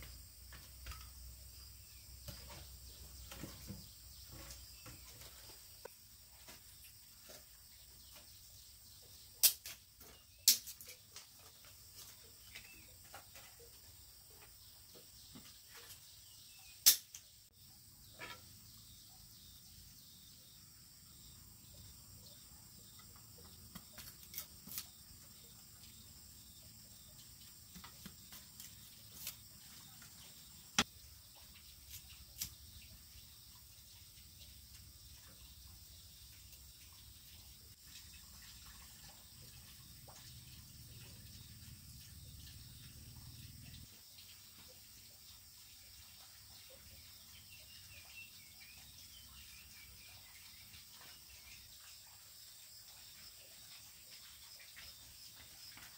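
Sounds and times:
sticks snapping and chopping: 0:09.4 - 0:09.8, 0:10.4 - 0:10.8, 0:16.8 - 0:17.3.

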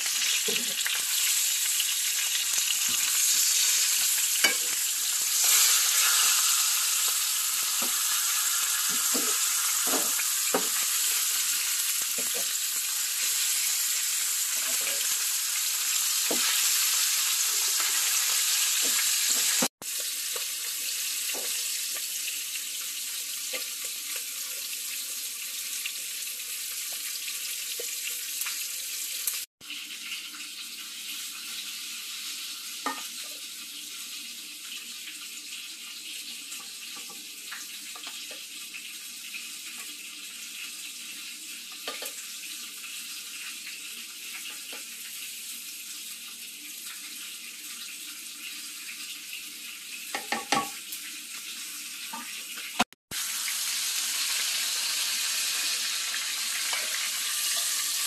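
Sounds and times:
meat sizzling in a pan: 0:00.0 - 0:58.0.

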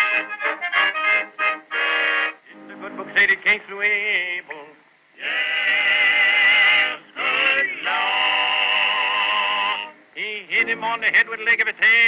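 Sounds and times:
men singing together: 0:05.2 - 0:09.9.

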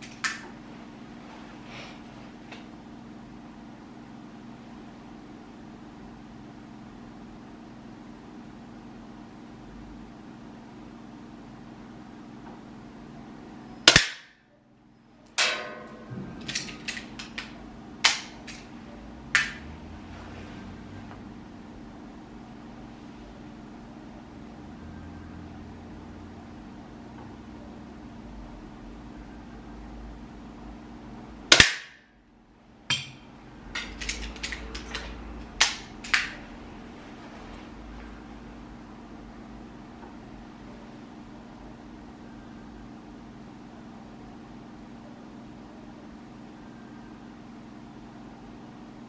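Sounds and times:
air pistol shot: 0:13.9 - 0:14.3, 0:31.5 - 0:32.0
sharp snaps: 0:13.9 - 0:14.4, 0:16.5 - 0:18.7, 0:19.4 - 0:19.6, 0:31.5 - 0:32.0, 0:35.6 - 0:36.4
pistol clicks and clacks: 0:33.8 - 0:36.4.

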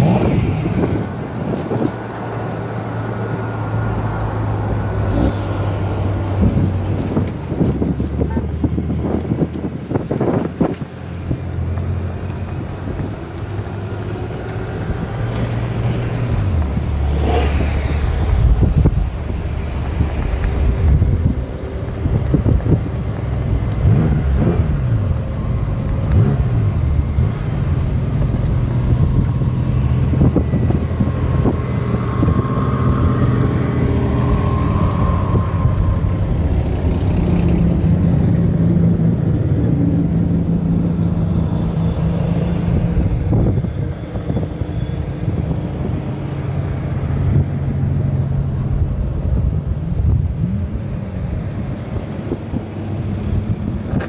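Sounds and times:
engine revving: 0:00.0 - 0:07.6, 0:12.1 - 0:19.0, 0:22.0 - 0:43.7.

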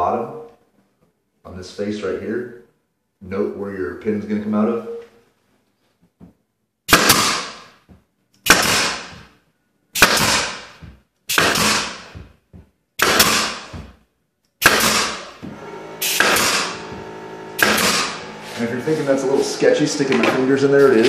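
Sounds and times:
pneumatic nailer firing: 0:06.9 - 0:07.7, 0:08.4 - 0:09.3, 0:10.0 - 0:12.2, 0:13.0 - 0:13.9, 0:14.6 - 0:18.6.

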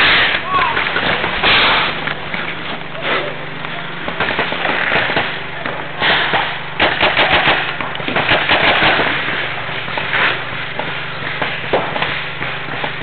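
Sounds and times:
paintball markers firing: 0:06.8 - 0:09.1.

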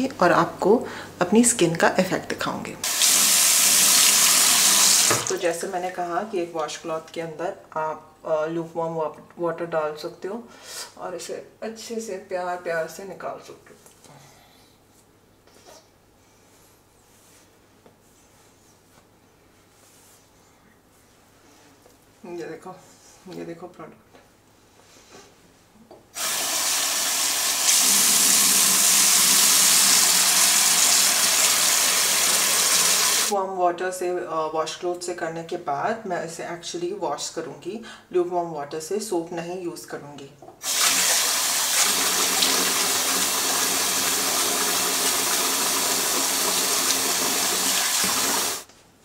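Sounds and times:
tap water running into sink: 0:02.8 - 0:05.4, 0:26.2 - 0:33.3, 0:40.6 - 0:48.7.

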